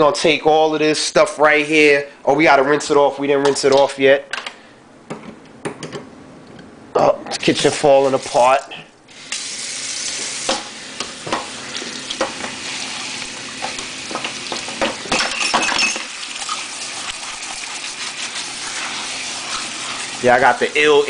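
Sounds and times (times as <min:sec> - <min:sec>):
faucet water running into colander: 0:07.9 - 0:15.1, 0:15.9 - 0:21.0.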